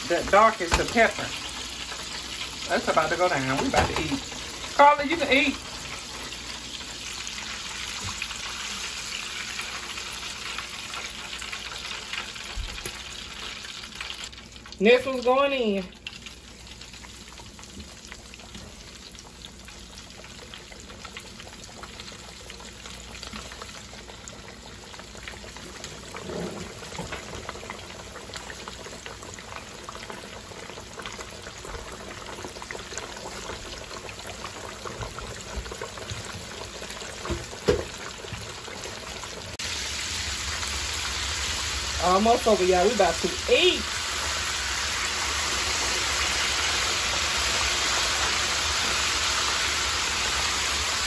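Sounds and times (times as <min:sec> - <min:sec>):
oil sizzling while deep-frying: 0:00.0 - 0:51.0.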